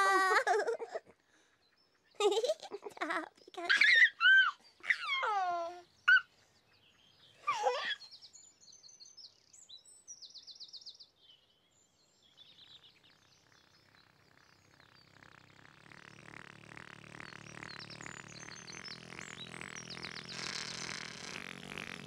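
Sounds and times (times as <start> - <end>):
baby giggling: 0.0 - 1.1, 2.2 - 6.2, 7.5 - 8.0
birds chirping: 1.3 - 22.0.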